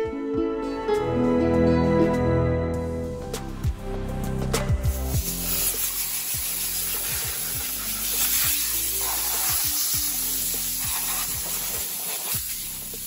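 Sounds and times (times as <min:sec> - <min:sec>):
music with deep beat: 0:00.9 - 0:13.0
water spraying hiss: 0:04.9 - 0:13.0.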